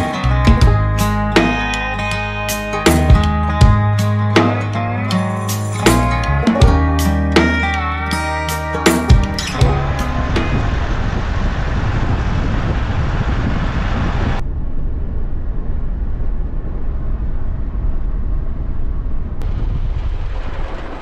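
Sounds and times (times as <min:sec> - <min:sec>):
tyre and wind noise: 0:09.1 - 0:21.0
engine and road noise in cab: 0:09.3 - 0:14.6.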